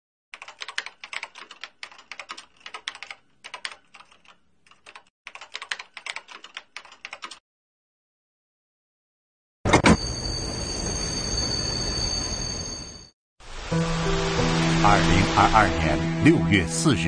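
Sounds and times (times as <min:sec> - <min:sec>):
computer keyboard typing: 0:00.4 - 0:07.4.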